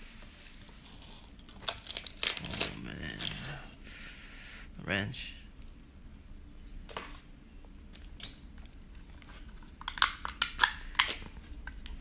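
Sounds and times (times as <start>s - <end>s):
foil lid crinkling: 1.6s - 3.5s.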